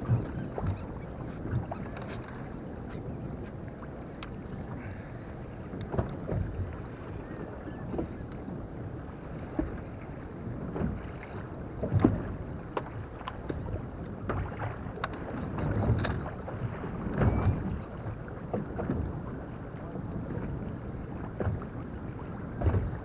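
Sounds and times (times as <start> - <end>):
water lapping against boat hull: 0.0 - 23.0
wind buffeting microphone: 0.0 - 23.0
fishing tackle clicks and knocks: 15.0 - 16.3.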